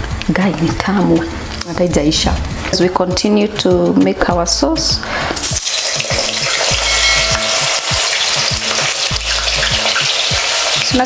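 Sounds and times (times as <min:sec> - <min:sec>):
potatoes sizzling in hot oil: 0:05.4 - 0:11.0.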